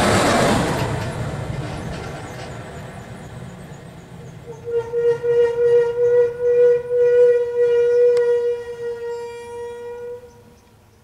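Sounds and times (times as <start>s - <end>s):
bus horn long note: 4.5s - 10.5s.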